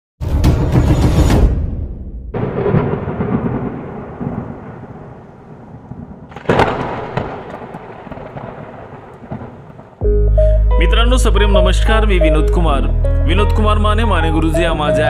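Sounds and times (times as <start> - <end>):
thunder rumbling and cracking: 1.4 - 10.1.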